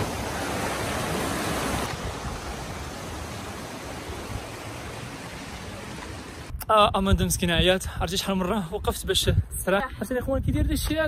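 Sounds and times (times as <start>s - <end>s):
creek water rushing over rocks: 0.0s - 6.5s.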